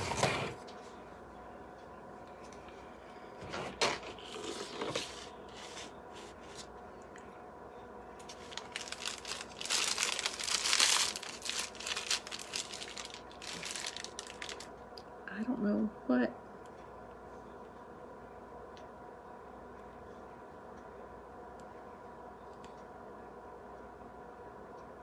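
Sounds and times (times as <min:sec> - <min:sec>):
plastic piping bag crinkling: 0:08.2 - 0:14.7.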